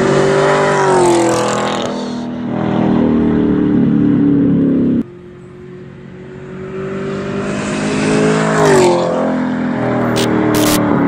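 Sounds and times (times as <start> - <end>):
car engine accelerating hard: 0.0 - 11.0
car passing by: 6.1 - 11.0.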